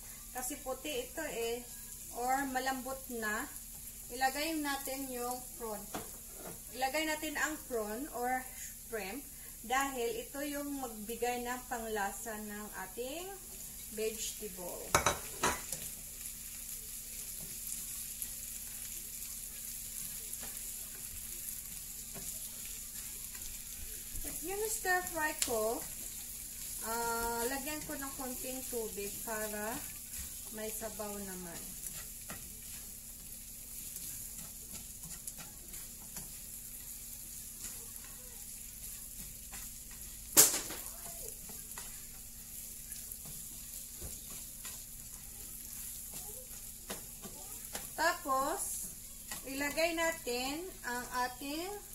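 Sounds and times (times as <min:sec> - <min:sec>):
food sizzling in a frying pan: 0:00.0 - 0:51.9
sharp sizzling burst: 0:00.0 - 0:51.9
spatula scraping and tapping: 0:20.0 - 0:37.0, 0:37.6 - 0:48.0, 0:48.8 - 0:49.9.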